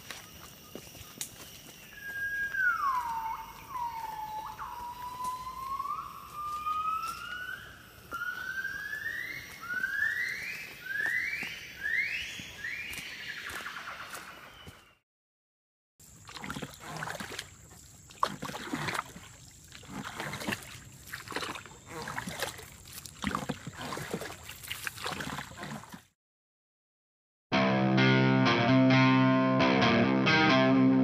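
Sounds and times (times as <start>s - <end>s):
gibbon whooping calls: 2.0s - 12.9s.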